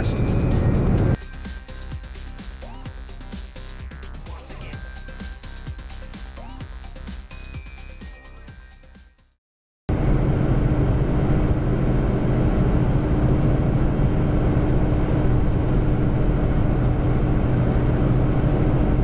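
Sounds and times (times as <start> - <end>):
diesel engine droning: 0.0 - 1.2, 9.9 - 19.0
road noise: 0.0 - 1.2.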